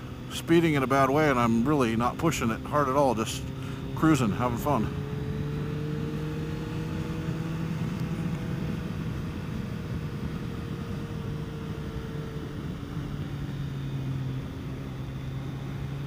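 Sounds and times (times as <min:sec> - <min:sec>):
motorcycle engine cruising: 0:00.0 - 0:16.0
wind noise on microphone: 0:04.9 - 0:13.6.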